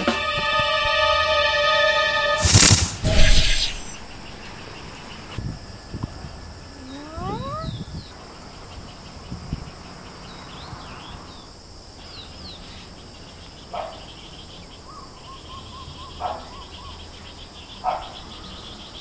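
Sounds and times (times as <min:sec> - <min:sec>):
insects droning: 0:00.0 - 0:19.0
birds chirping: 0:03.0 - 0:05.4.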